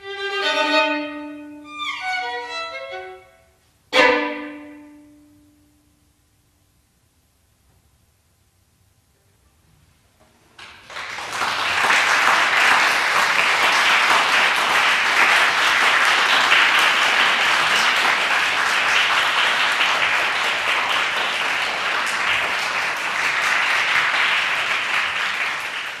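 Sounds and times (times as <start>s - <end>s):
audience applauding: 10.6s - 26.0s.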